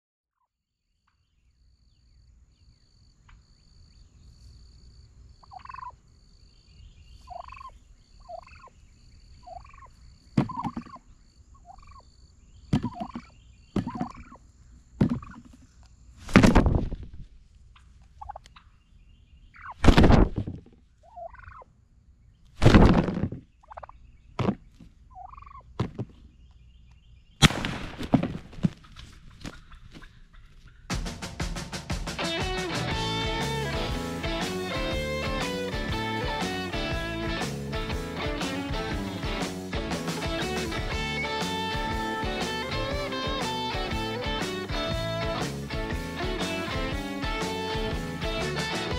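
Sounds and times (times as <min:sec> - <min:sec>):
short turkey calls: 0:05.4 - 0:06.0, 0:07.1 - 0:08.8, 0:09.4 - 0:12.1, 0:12.7 - 0:15.9, 0:17.8 - 0:18.8, 0:19.5 - 0:19.8, 0:21.0 - 0:21.7, 0:23.6 - 0:24.0, 0:24.7 - 0:25.7, 0:28.6 - 0:30.9
turkeys gobbling: 0:05.4 - 0:06.0, 0:07.2 - 0:08.7, 0:09.4 - 0:12.1, 0:12.8 - 0:14.4, 0:15.0 - 0:15.8, 0:17.8 - 0:18.8, 0:19.6 - 0:19.8, 0:21.0 - 0:21.7, 0:23.6 - 0:24.0, 0:25.1 - 0:25.6, 0:28.6 - 0:30.9, 0:38.2 - 0:48.9.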